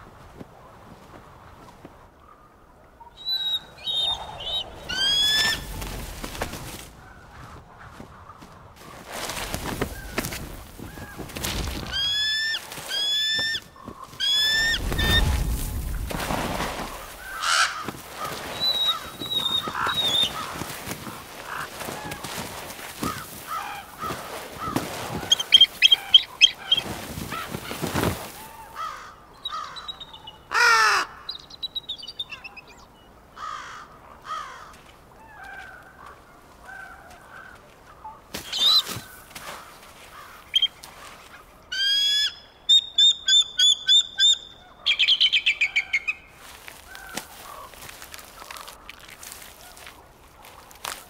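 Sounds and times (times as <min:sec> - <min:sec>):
eagles calling: 0:02.2 - 0:51.0
rustling: 0:08.8 - 0:28.6.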